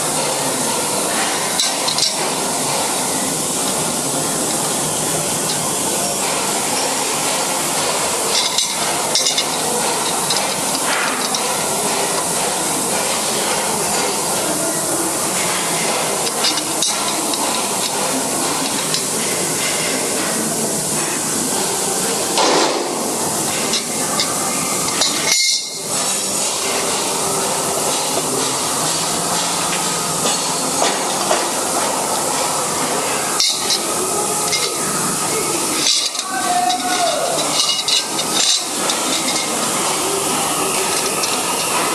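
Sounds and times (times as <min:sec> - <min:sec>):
spanner clinking on metal bolts: 0:01.6 - 0:02.3, 0:08.3 - 0:11.7, 0:15.8 - 0:19.9, 0:23.5 - 0:26.0, 0:33.4 - 0:35.0, 0:35.6 - 0:39.8.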